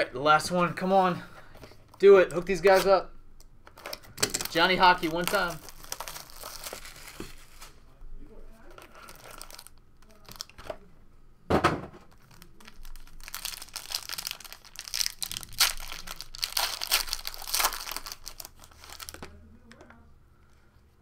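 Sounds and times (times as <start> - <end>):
plastic wrapping crinkling: 3.6 - 7.8, 8.5 - 10.8, 12.1 - 19.9
plastic wrapping tearing: 3.6 - 7.8, 8.6 - 10.8, 12.1 - 19.4.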